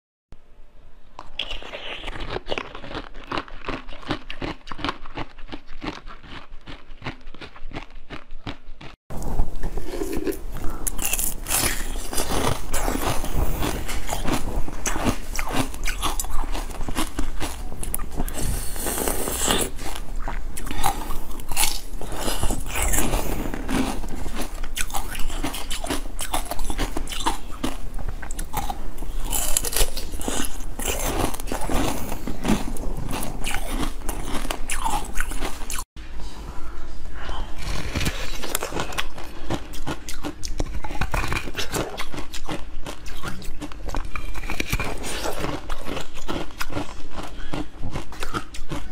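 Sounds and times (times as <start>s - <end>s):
crunching of ice: 1.4s - 35.8s.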